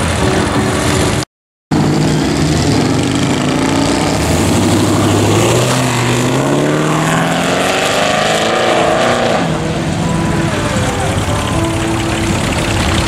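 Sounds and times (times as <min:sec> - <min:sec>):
car engine revving and accelerating: 0:00.0 - 0:10.9.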